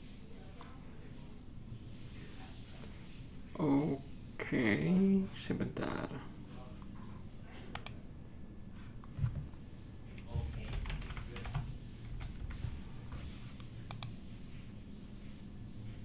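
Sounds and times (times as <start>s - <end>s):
typing on computer keyboard: 10.2s - 12.7s.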